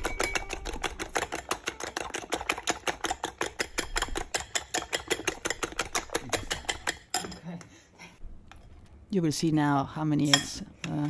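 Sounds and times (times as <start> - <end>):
fork beating eggs in glass bowl: 0.0 - 7.4.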